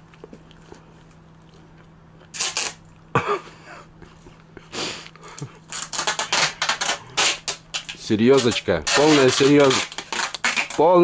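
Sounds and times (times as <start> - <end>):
faint steady hum: 0.0 - 11.0
rustling handling noise: 5.7 - 11.0.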